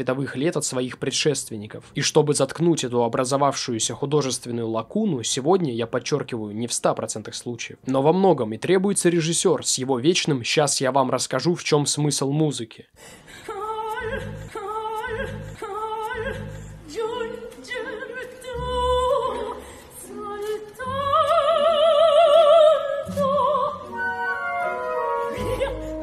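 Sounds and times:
operatic soprano singing: 13.3 - 26.0.

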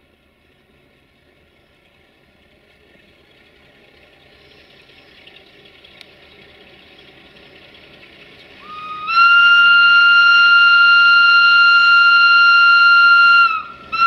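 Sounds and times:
faint diesel engine: 0.0 - 14.0
locomotive whistle blast: 8.6 - 14.0.

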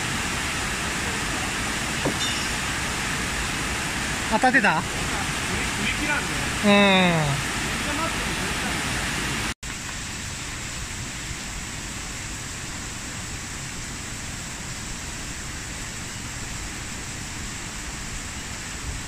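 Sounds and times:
mountain stream cascading water: 0.0 - 19.0.

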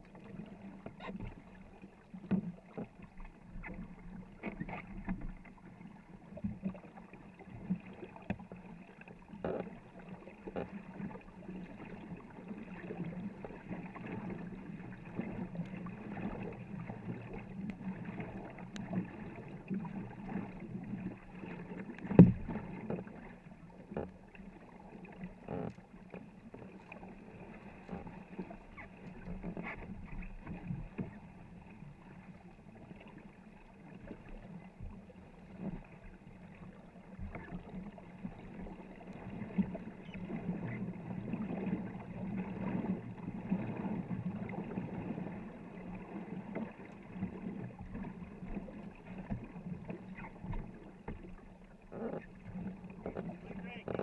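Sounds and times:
paddles stroking and splashing: 0.0 - 54.0
water rushing along hull: 0.0 - 54.0.

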